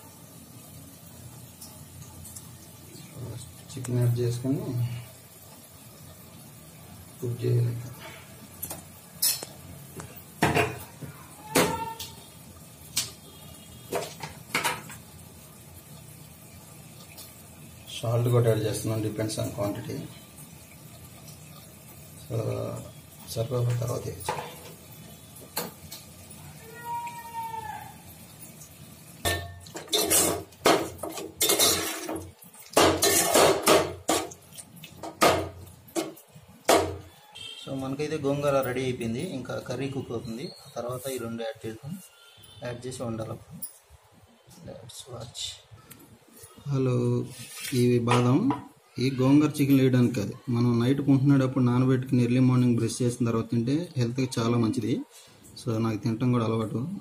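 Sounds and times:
metal clanking on cooking pot: 29.2s - 34.4s
metal spoon scraping a pot: 29.7s - 30.5s, 33.0s - 33.7s.

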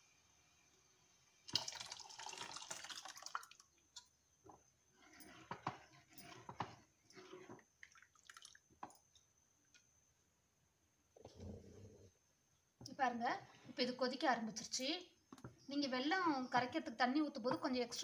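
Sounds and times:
thick liquid pouring and splashing: 1.5s - 3.7s, 7.8s - 8.6s
ladle scraping clay pot: 4.9s - 7.7s.

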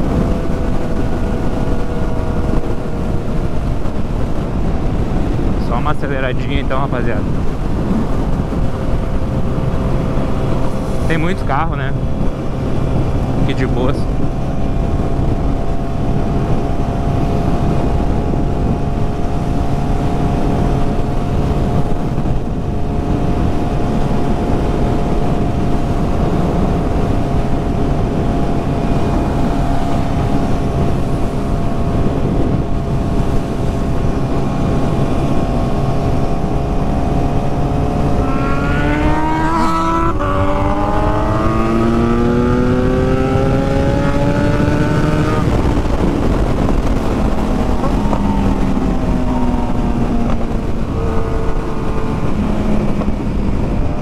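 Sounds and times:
motorcycle engine accelerating: 0.0s - 54.0s
rushing noise: 28.2s - 54.0s.

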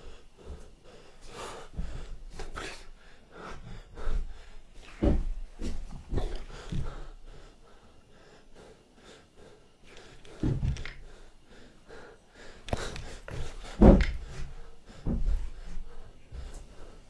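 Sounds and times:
man breathing hard: 0.0s - 17.0s.

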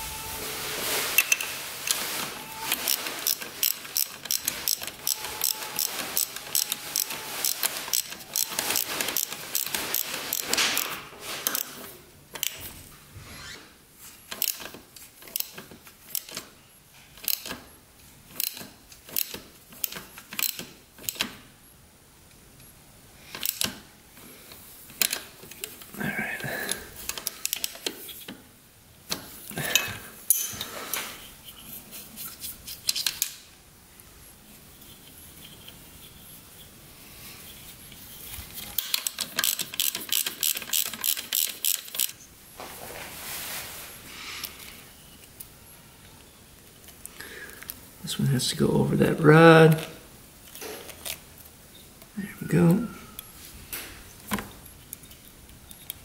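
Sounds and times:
hand tools clicking on metal: 2.6s - 11.8s, 17.2s - 17.6s, 18.3s - 21.4s, 38.6s - 42.2s.

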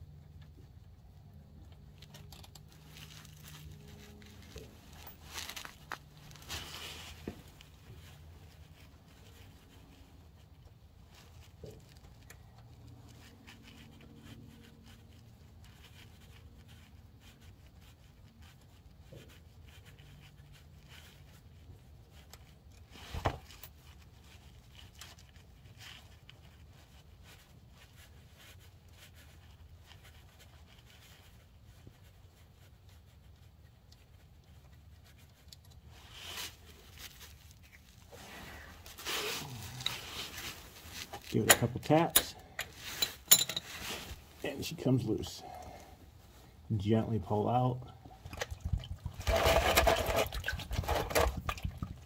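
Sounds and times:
bolts scraping and ticking: 39.8s - 45.4s.

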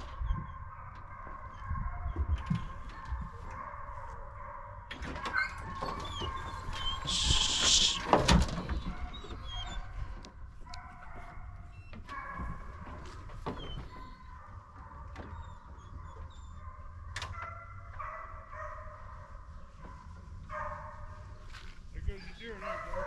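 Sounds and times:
dogs whining: 0.0s - 3.6s, 5.2s - 10.3s, 11.6s - 12.6s, 13.4s - 17.8s
doors and latches clanking: 4.9s - 7.2s
brief hiss: 7.0s - 8.2s.

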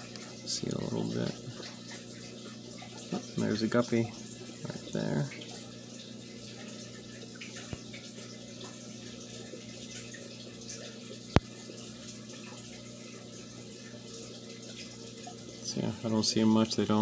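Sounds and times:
aquarium water trickling: 0.0s - 17.0s.

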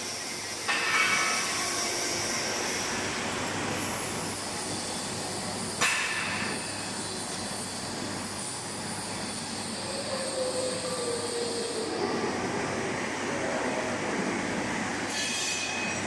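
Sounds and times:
high metallic whine: 0.0s - 16.0s
industrial machinery noise: 0.0s - 16.0s.

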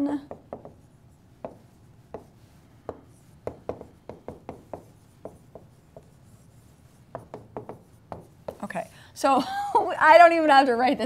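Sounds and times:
stylus tapping on pen tablet: 0.3s - 6.2s, 7.1s - 8.7s.

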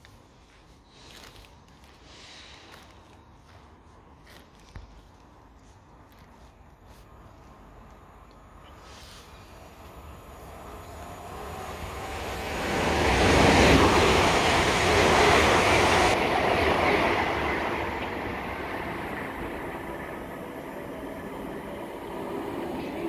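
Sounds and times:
train rumble and rail noise: 6.6s - 23.0s
electric train passing: 8.0s - 23.0s.

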